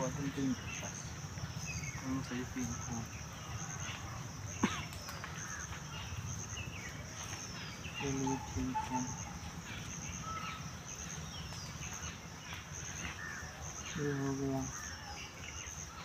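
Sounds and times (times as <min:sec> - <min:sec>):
crickets chirping: 0:00.0 - 0:16.0
falling bird calls: 0:00.0 - 0:16.0
distant three-syllable call: 0:07.8 - 0:10.8.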